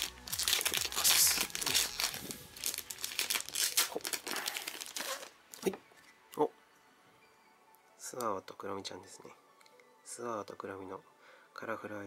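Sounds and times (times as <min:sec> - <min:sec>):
foil bag tearing and crinkling: 0:00.0 - 0:05.7.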